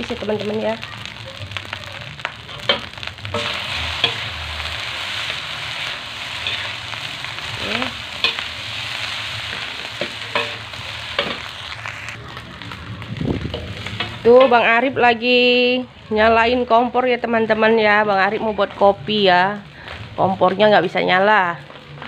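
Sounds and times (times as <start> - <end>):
fried rice sizzling in a wok: 0.0 - 22.0
metal spatula scraping: 2.5 - 4.4, 5.0 - 12.2.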